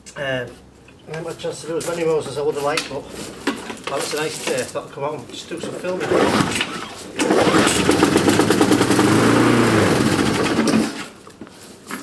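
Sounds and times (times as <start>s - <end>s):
lawnmower engine starting and running: 6.0s - 11.2s.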